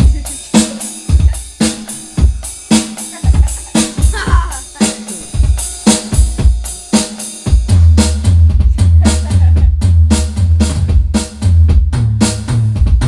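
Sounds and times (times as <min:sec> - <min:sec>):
drum kit beat: 0:00.0 - 0:13.0
low bass line: 0:03.3 - 0:06.6, 0:07.5 - 0:13.0.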